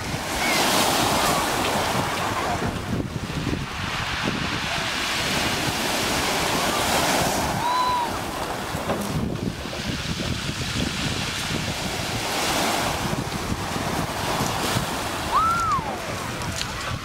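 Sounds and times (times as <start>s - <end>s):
surf breaking on pebble beach: 0.0s - 17.0s
wind buffeting microphone: 0.0s - 17.0s.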